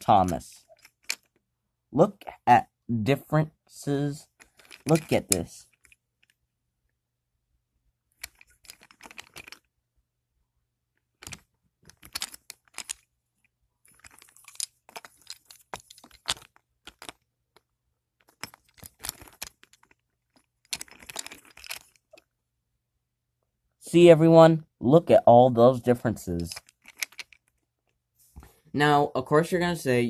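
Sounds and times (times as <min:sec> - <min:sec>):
wooden toy trains on wooden track: 0:04.4 - 0:05.8, 0:26.2 - 0:27.4.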